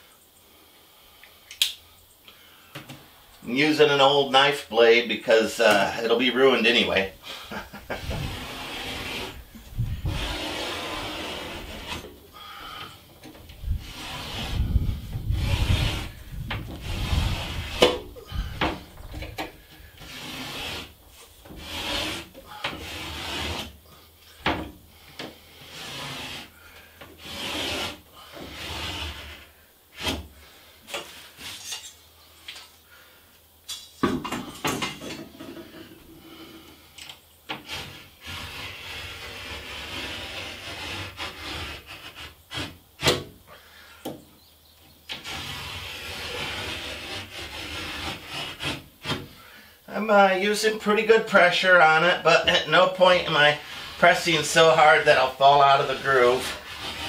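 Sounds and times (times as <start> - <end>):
knife blade scraping board: 7.9 - 12.2, 13.9 - 16.2, 30.9 - 32.0, 45.2 - 49.3.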